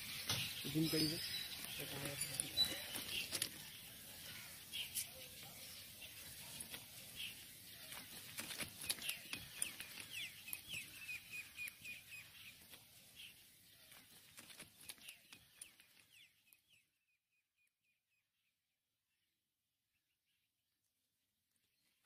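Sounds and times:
small birds chirping: 0.0 - 18.5
sharp clicks: 7.9 - 12.0.

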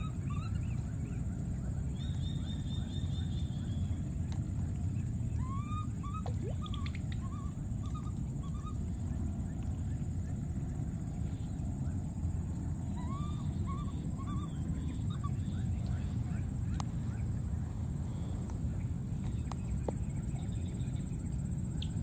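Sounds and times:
faint high whine: 0.0 - 22.0
steady low rumble: 0.0 - 22.0
baby monkeys calling: 5.4 - 8.8, 12.9 - 16.6.

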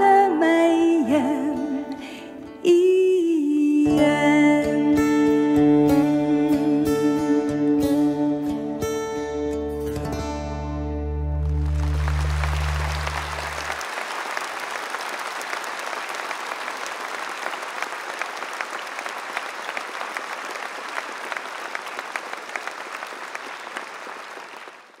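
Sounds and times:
audience applauding: 11.4 - 25.0.

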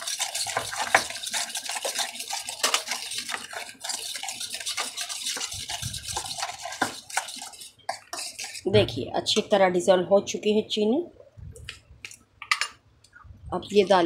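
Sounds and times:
utensil scraping metal bowl: 0.0 - 9.4.

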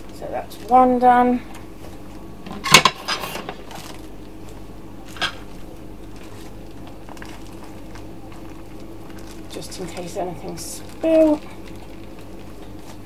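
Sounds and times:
low steady hum: 0.0 - 13.0
plastic crinkle: 0.0 - 13.0
cloth rubbing plastic bag: 3.0 - 13.0.

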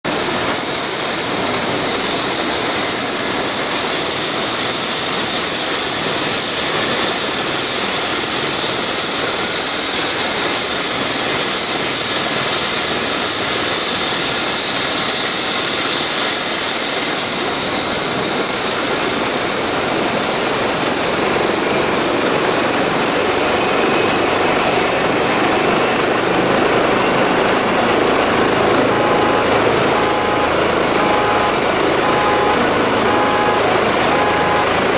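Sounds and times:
helicopter rotor noise: 0.1 - 34.9
turbine whine: 20.0 - 34.9.

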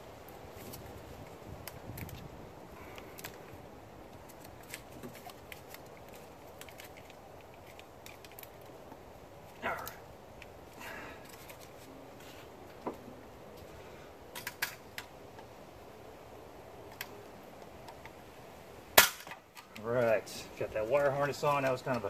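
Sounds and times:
wires rustling: 0.0 - 15.8.

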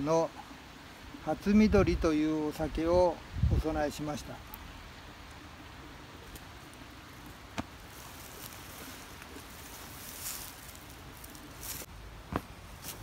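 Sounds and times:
soft hissy rustles: 0.0 - 13.0.

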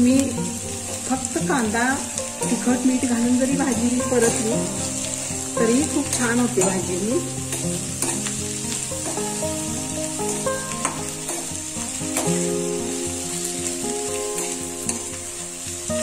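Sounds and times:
vegetables sizzling in hot oil: 0.0 - 16.0
metal spatula scraping pan: 3.6 - 13.5.

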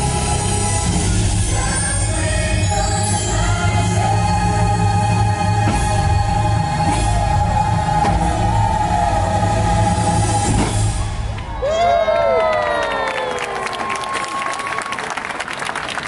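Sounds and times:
steady low bass: 0.0 - 11.6.

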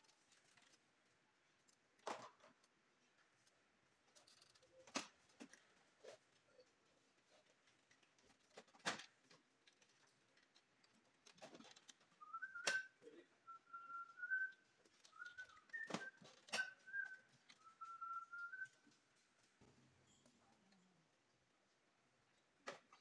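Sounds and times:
person whistling a tune: 12.2 - 18.8.

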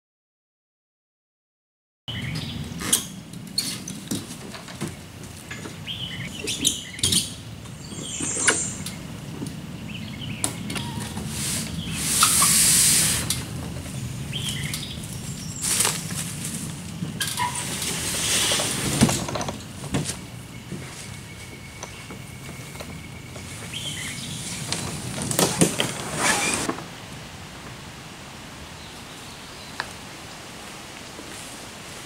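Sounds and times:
birds chirping: 2.1 - 3.0, 4.8 - 12.6, 13.8 - 16.2, 20.2 - 26.5
canoe hull scraping on trailer: 17.4 - 19.6, 23.3 - 26.8.

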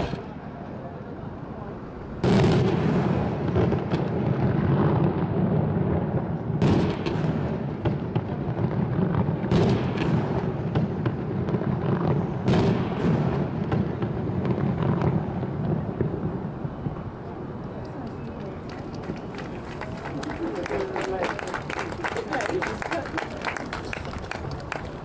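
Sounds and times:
loud firework bangs: 0.0 - 0.4, 2.1 - 17.2
firework crackling: 2.0 - 25.0.

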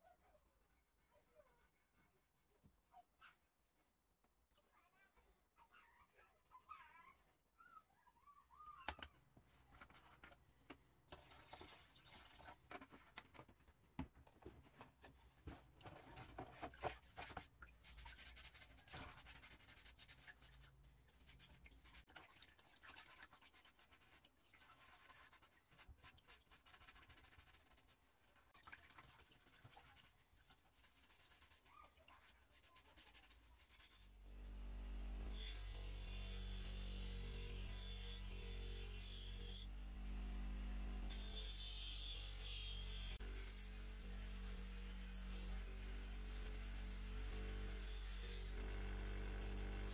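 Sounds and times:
sponge scrubbing metal parts: 14.6 - 34.2.

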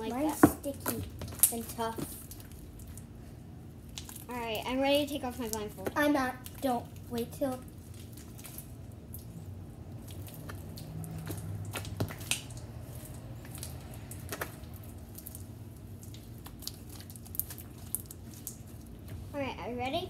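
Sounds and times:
slime squishing: 0.0 - 20.0.

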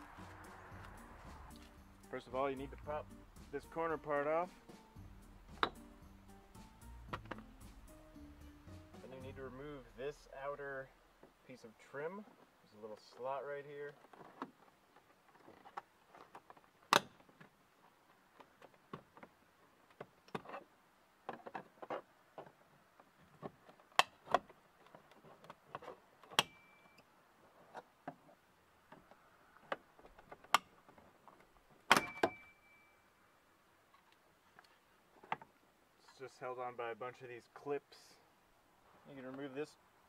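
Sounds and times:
brief high ring: 32.0 - 33.1.

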